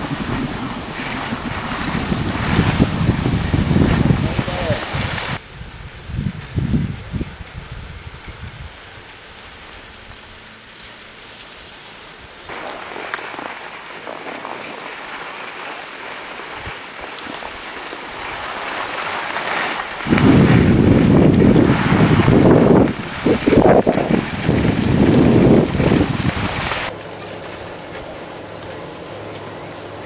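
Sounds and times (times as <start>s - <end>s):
skis scraping over snow: 0.0s - 5.4s, 7.7s - 29.5s
wind buffeting microphone: 0.0s - 9.1s, 20.0s - 26.9s.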